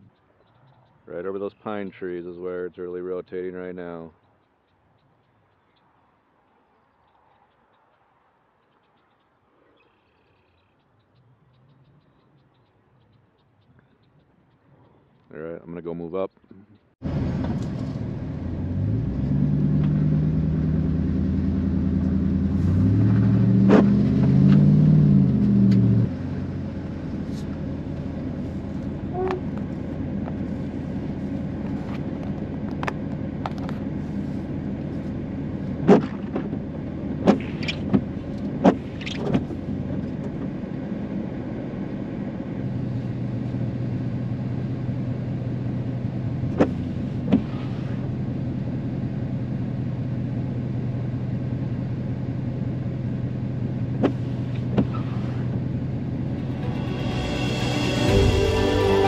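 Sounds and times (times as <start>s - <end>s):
road and engine rumble: 0.0s - 59.0s
low engine hum: 16.8s - 59.0s.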